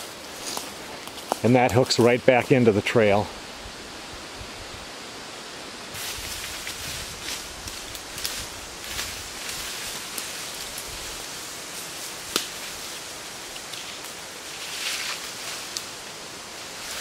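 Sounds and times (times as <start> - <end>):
leaves and brush rustling: 0.0 - 17.0
steady hiss: 0.0 - 17.0
twig snapping: 12.3 - 12.6.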